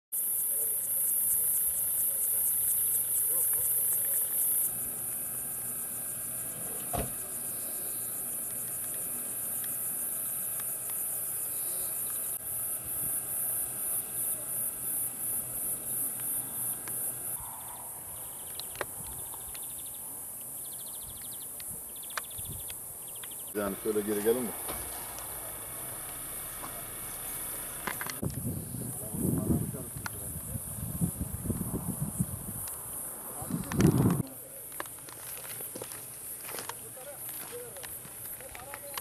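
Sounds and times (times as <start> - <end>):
cicadas shrilling: 0.2 - 39.0
faint idling engine hum: 23.6 - 28.2.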